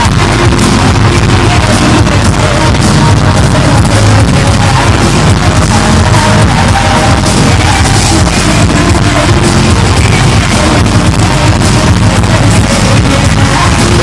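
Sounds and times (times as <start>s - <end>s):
loud live band music: 0.0s - 14.0s.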